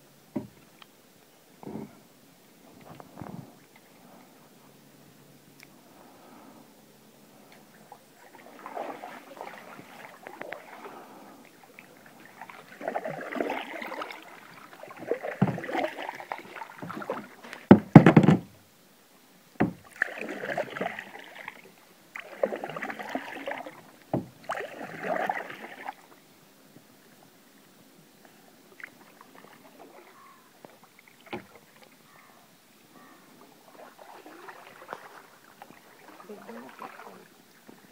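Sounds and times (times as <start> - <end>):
canoe paddle swishing water: 7.4 - 18.4, 19.6 - 37.9
sharp loud knocks: 17.7 - 18.5.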